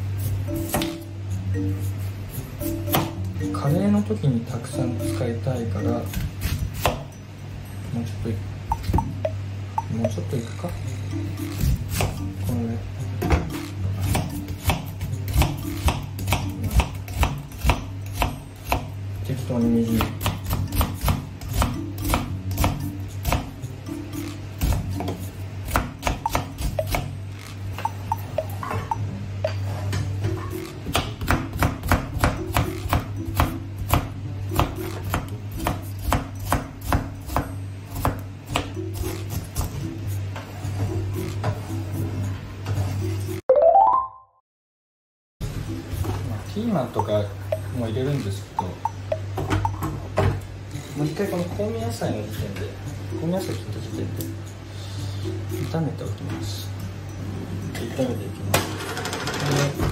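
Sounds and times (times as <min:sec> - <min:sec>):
knife slicing onion on board: 0:06.0 - 0:07.1, 0:11.5 - 0:12.3, 0:13.3 - 0:19.0, 0:19.7 - 0:23.6, 0:24.2 - 0:28.5, 0:30.5 - 0:40.1.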